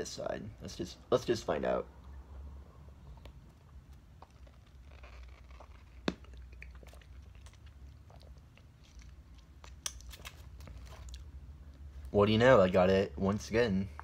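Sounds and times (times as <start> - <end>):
mouth sucking and chewing jelly: 2.0 - 11.9.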